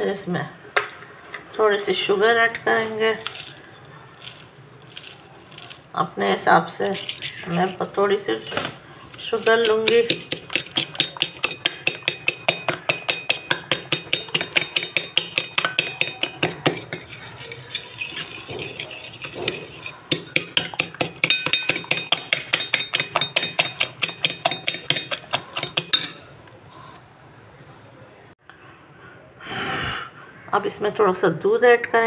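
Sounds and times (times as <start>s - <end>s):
fork clinking against china plate: 9.4s - 26.3s.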